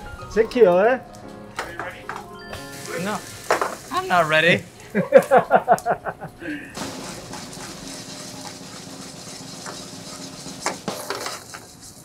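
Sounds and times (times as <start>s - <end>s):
batter sizzling in frying pans: 2.1s - 12.0s
pan clanking on burner grate: 3.4s - 3.9s, 6.8s - 11.6s.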